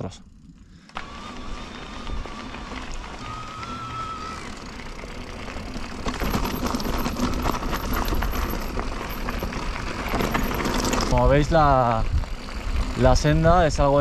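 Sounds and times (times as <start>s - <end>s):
bike tyre noise on trail: 0.2s - 14.0s
electric motor whine: 0.3s - 11.1s
rattling clatter: 5.4s - 11.8s.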